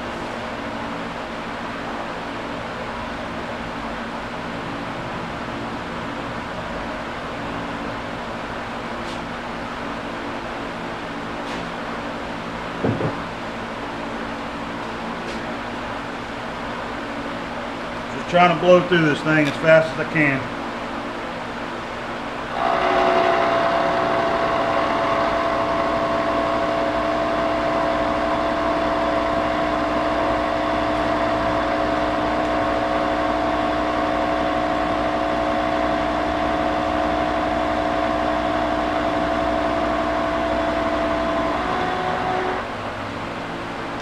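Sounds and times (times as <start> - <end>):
milling machine cutting steel: 22.5 - 42.6.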